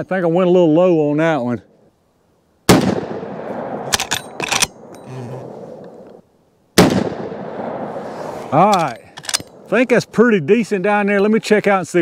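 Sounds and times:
rifle shots with echo: 2.7s - 4.9s, 6.8s - 8.0s
rifle lever clicking: 8.7s - 9.6s.

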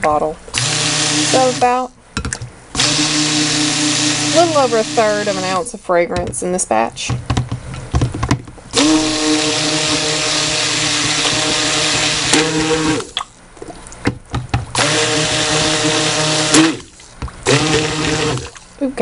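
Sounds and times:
stick blender motor hum: 0.5s - 1.8s, 2.8s - 5.7s, 8.7s - 13.2s, 14.7s - 18.8s.

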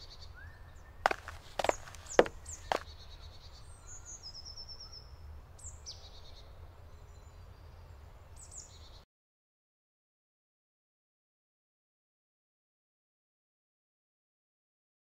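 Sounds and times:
small birds singing: 0.0s - 9.0s
sharp knocks: 1.1s - 2.8s.

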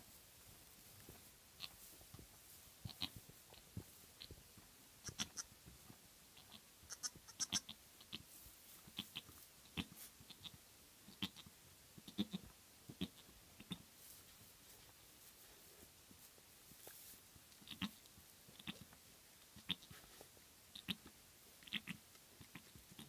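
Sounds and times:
goats calling softly: 2.8s - 3.6s, 5.0s - 5.6s, 6.4s - 13.9s, 16.8s - 23.0s.

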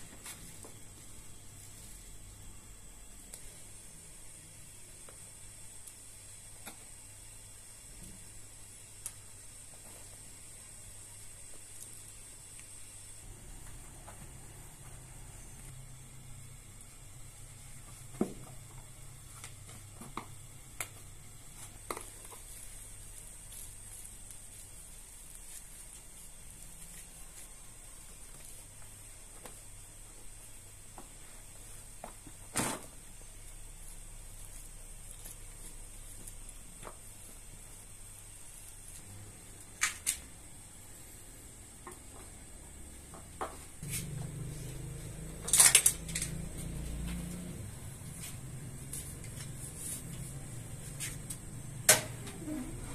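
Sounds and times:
dough squishing: 16.8s - 39.3s.

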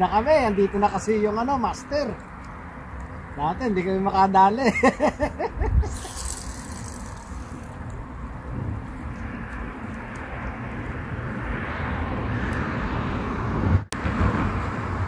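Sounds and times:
even hiss: 5.8s - 7.9s.

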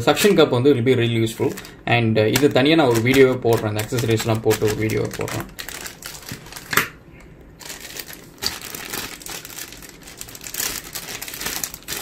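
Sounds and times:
plastic bags crinkling: 1.3s - 7.0s, 7.6s - 12.0s.

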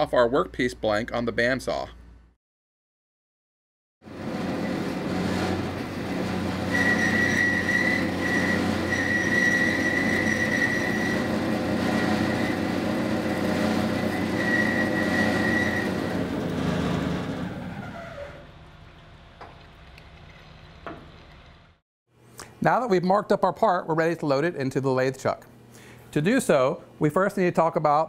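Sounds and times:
bandsaw cutting metal: 4.1s - 18.4s.

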